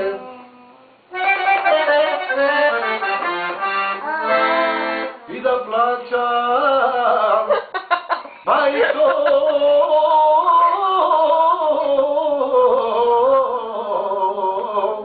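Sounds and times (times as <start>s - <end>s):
accordion playing folk melody: 1.1s - 5.4s.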